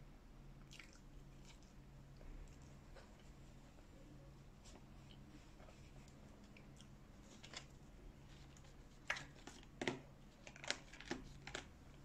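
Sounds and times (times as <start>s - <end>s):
paper boxes clicking and crinkling: 8.6s - 11.7s.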